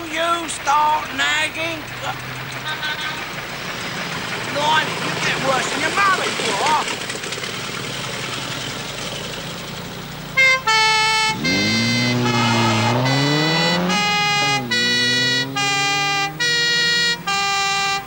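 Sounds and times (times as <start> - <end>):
road noise: 0.0 - 18.0
engine revving: 0.6 - 18.0
police two-tone siren: 10.4 - 18.0.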